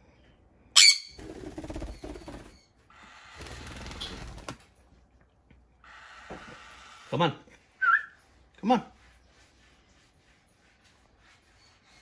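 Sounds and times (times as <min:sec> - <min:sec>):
parrot screeching: 0:00.8 - 0:01.2, 0:05.8 - 0:07.2.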